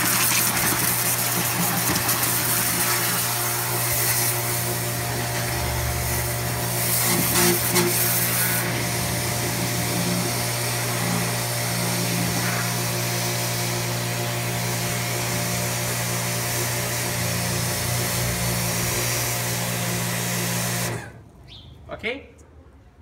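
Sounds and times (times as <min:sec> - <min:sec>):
high-pressure water jet hiss: 0:00.0 - 0:13.9, 0:16.7 - 0:21.0
pressure washer motor hum: 0:00.0 - 0:21.2.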